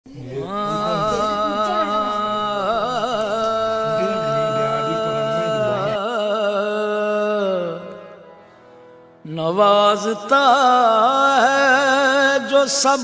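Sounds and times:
low accompanying line: 0.1 - 6.0
person singing long vibrato notes: 0.2 - 8.2.

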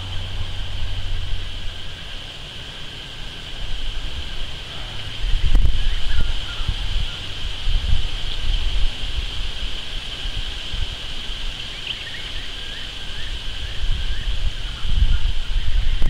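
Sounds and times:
insect hiss: 0.0 - 16.0
wind buffeting the microphone: 3.2 - 16.0
faint bird chirps: 4.6 - 7.4, 11.3 - 16.0.

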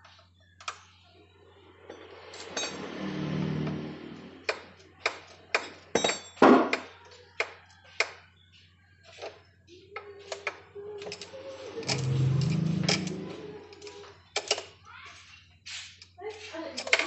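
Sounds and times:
metal scrape: 2.0 - 4.5, 11.5 - 14.0
metal tools clinking on engine: 5.7 - 6.4.

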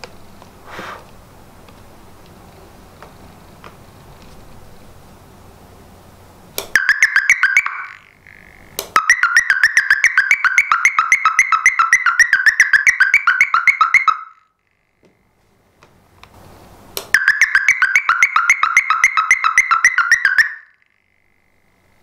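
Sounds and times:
warbling alarm siren: 6.8 - 14.5, 17.2 - 20.9.

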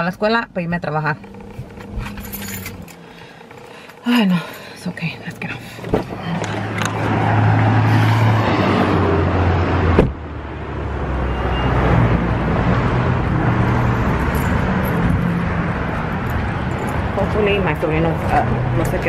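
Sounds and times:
car engine running: 0.0 - 8.1, 13.0 - 19.0
car door shutting: 5.8 - 6.9, 10.0 - 10.2.

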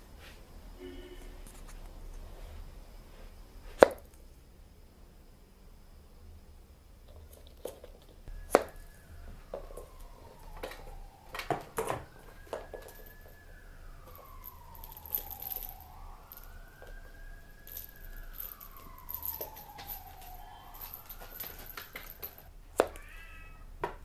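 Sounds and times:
ball and toys knocking: 7.6 - 13.4
faint siren-like wail: 8.3 - 22.5.

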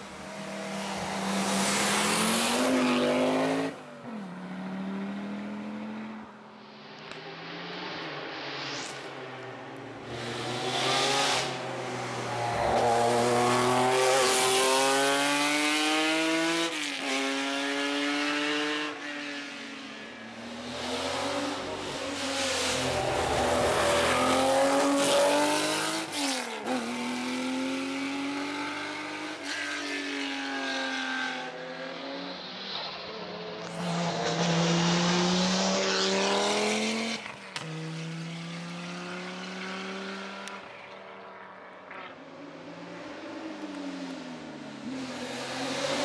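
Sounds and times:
rally car engine revving: 10.1 - 19.3, 33.6 - 40.6.

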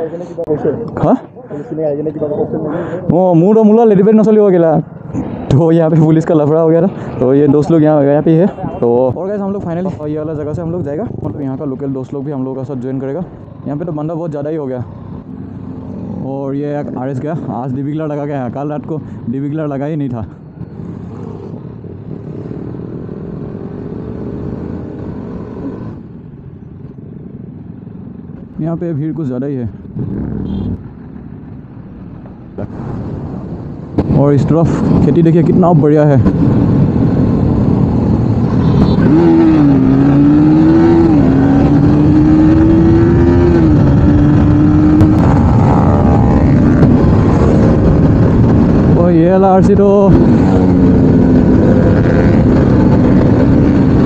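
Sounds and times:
wind noise: 20.2 - 54.0
motorcycle engine accelerating: 34.8 - 54.0.

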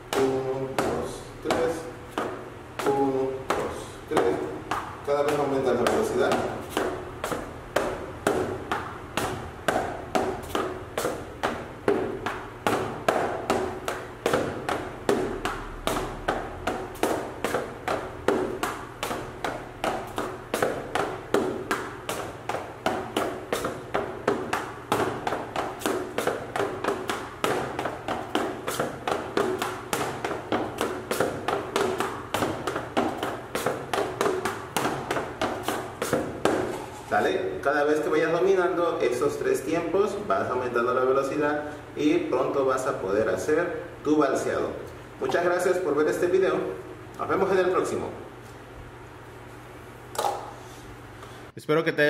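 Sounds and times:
boot heels tapping on platform: 0.0 - 37.0.

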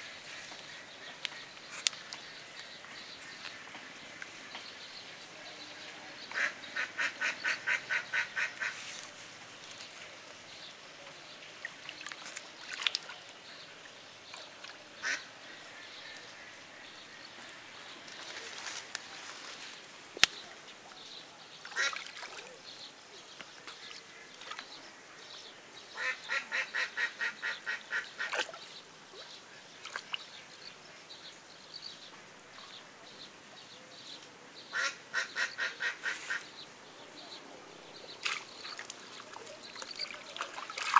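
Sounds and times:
ducks quacking: 6.3 - 8.8, 15.0 - 15.3, 26.0 - 28.4, 34.7 - 36.5.

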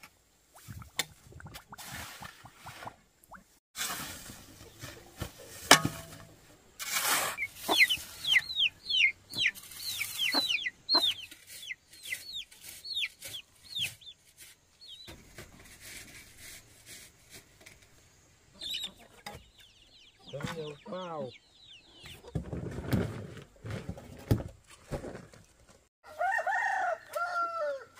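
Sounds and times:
shovel scraping sand: 3.8 - 14.6
hen clucking: 7.3 - 14.1, 18.5 - 22.3
chicks peeping: 7.4 - 15.1, 18.5 - 22.3.

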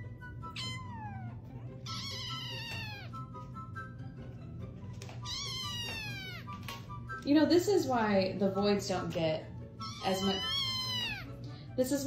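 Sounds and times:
kittens meowing: 0.5 - 3.2, 5.2 - 6.7, 9.8 - 11.4.

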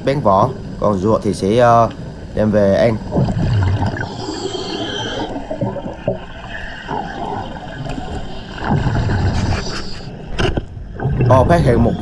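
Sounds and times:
underwater bubbling and gurgling: 0.0 - 12.0.

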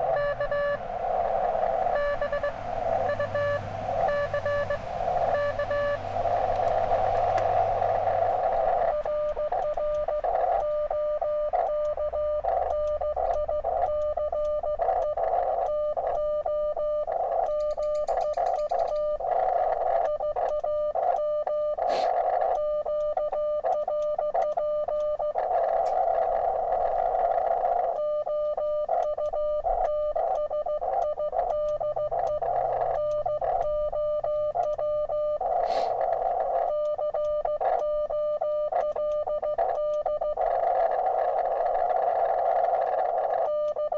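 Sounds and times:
radio receiver hiss: 0.0 - 12.1, 21.8 - 22.3, 35.4 - 36.8
morse code beeps: 0.0 - 43.9
sharp clicks: 6.3 - 16.3, 17.1 - 21.3, 34.6 - 38.0, 38.7 - 43.9.

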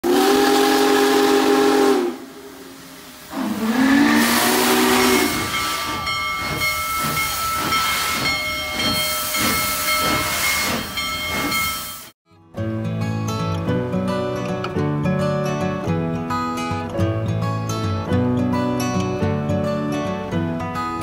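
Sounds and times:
steam hissing: 0.0 - 12.1
steam locomotive whistle: 0.0 - 12.1.

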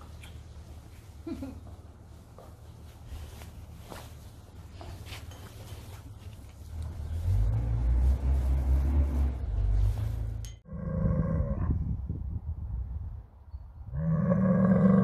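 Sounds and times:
low rumbling noise: 6.7 - 14.8
bull bellowing: 13.9 - 15.0.

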